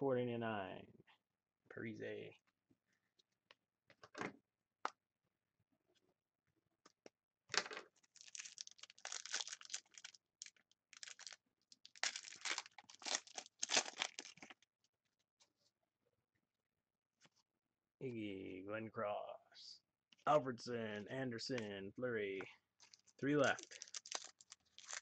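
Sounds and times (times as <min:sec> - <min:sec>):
card pack wrapper tearing and crinkling: 0:08.1 - 0:14.6, 0:22.8 - 0:25.0.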